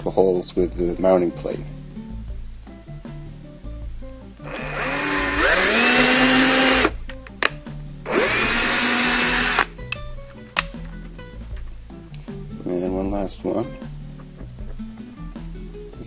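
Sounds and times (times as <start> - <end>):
cordless drill whining: 4.4 - 7.0, 8.1 - 9.7.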